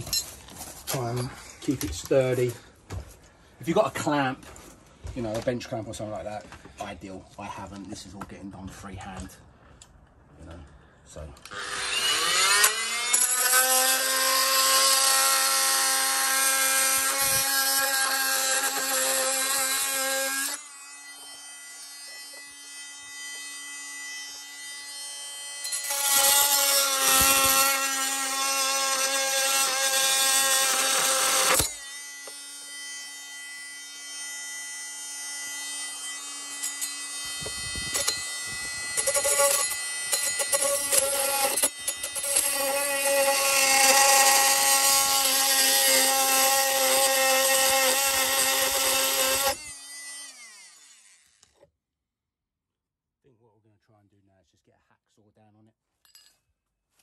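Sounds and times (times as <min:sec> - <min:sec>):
oscillating multi-tool cutting metal: 0:11.4 - 0:51.7.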